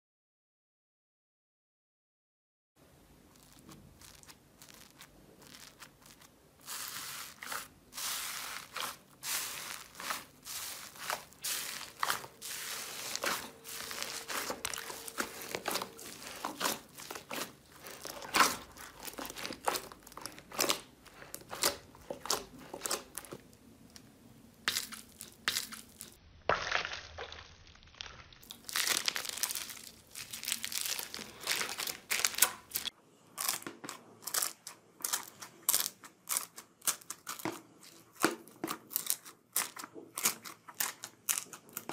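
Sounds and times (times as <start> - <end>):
slime and foam beads crackling: 3.2 - 41.9.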